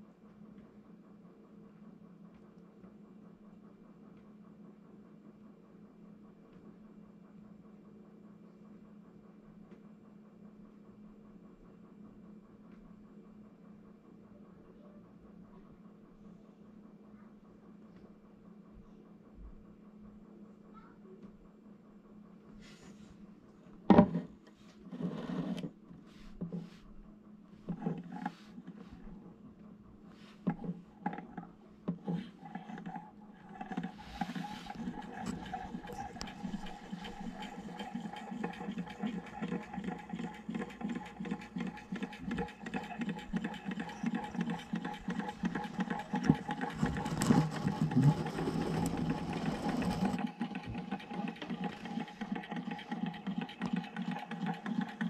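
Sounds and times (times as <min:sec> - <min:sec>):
small engine mechanical clatter: 0:30.5 - 0:55.0.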